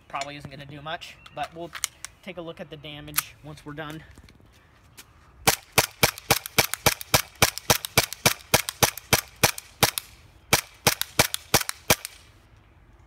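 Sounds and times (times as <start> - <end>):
airsoft pistol firing pops: 5.5 - 12.2.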